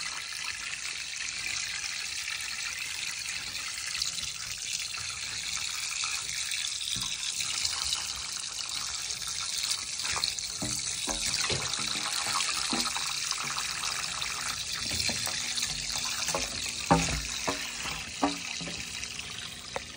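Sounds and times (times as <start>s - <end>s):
water gurgling: 0.0s - 19.9s
water trickling down drain pipe: 0.0s - 19.9s.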